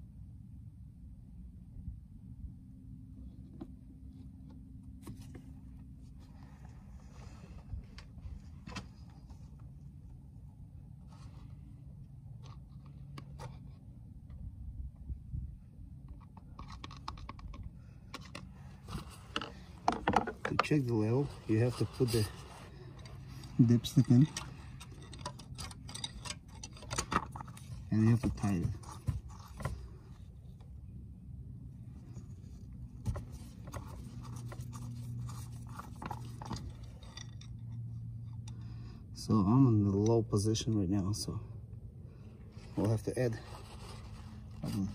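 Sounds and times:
low steady hum: 0.0s - 44.9s
steady low rumble: 0.0s - 44.9s
dipstick scraping and clicking: 16.0s - 30.7s, 33.0s - 38.6s
plastic funnel clicks and scrapes: 16.2s - 20.8s.

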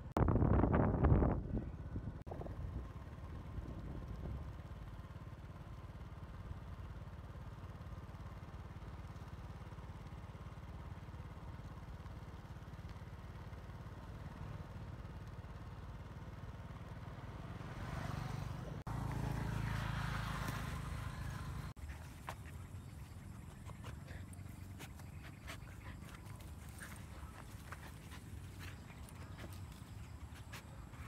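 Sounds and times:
wind on microphone: 0.0s - 4.5s
motorbike engine running: 0.2s - 31.0s.

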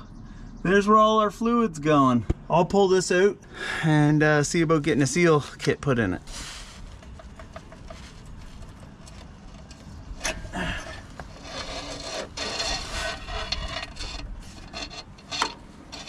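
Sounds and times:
rubbing and scraping: 6.2s - 16.0s.

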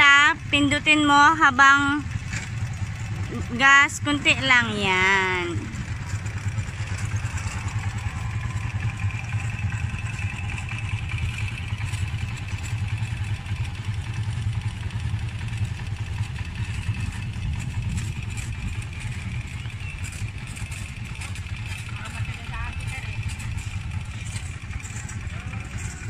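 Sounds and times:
motorcycle engine running at low revs: 0.0s - 26.0s.

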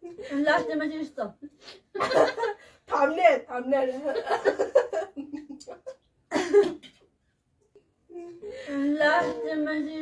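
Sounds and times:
person coughing: 6.3s - 6.8s.

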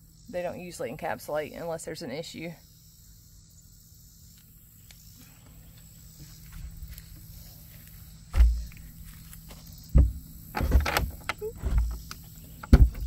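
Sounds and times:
access cover thumps and scrapes: 8.3s - 8.8s, 9.5s - 13.0s.

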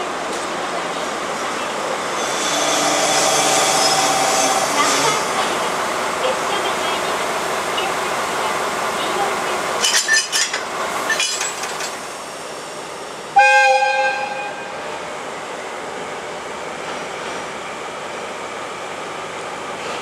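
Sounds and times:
railway noise: 0.0s - 20.0s
clanking and hissing: 9.7s - 12.2s
train horn: 13.4s - 14.8s.

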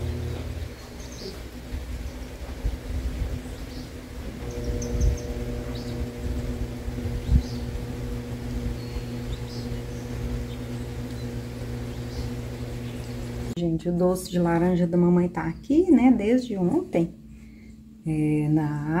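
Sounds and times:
small birds chirping: 0.0s - 13.6s
low hum and rumble: 0.0s - 19.0s.

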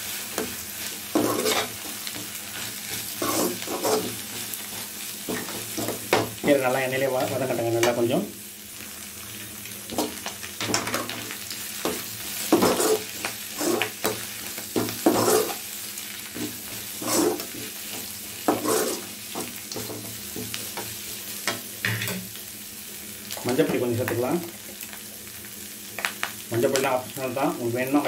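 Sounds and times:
leaves sizzling in oil: 0.0s - 28.0s
spatula scraping pan: 0.4s - 6.6s, 11.8s - 15.7s, 16.3s - 20.9s.

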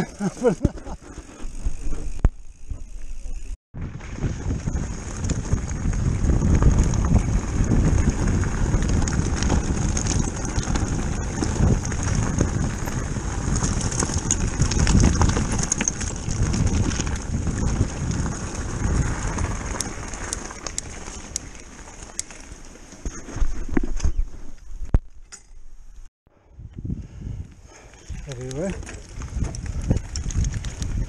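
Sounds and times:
bike tyres crunching on gravel: 0.0s - 24.8s, 27.6s - 31.0s
wind buffeting microphone: 3.7s - 21.8s, 26.4s - 31.0s.

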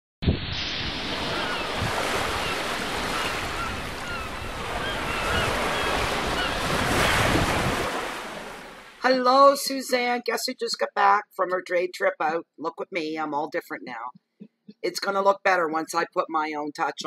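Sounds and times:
wind blowing: 0.2s - 9.0s
waves washing on shore: 0.5s - 9.0s.

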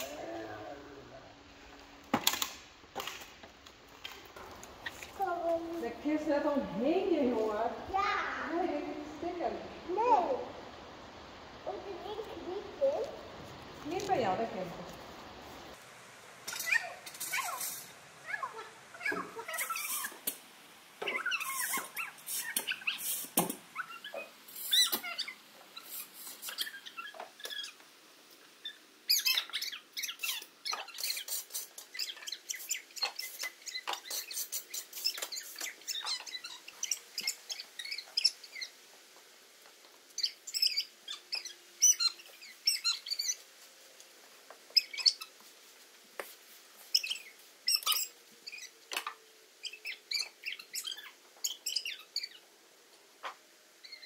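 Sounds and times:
straw bedding rustling and crackling: 11.7s - 20.2s.

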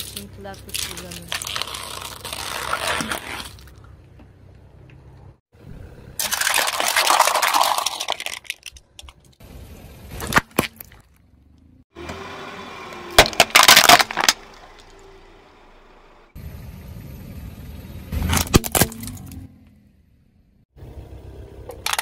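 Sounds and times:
glass breaking under tyre: 0.0s - 3.6s, 6.2s - 9.0s, 13.2s - 14.9s, 18.2s - 19.4s, 21.8s - 22.0s
plastic cups bursting with splash: 6.2s - 8.8s.

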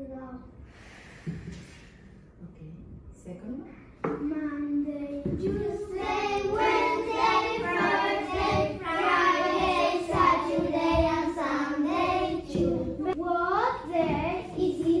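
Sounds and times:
children singing together: 5.0s - 15.0s.

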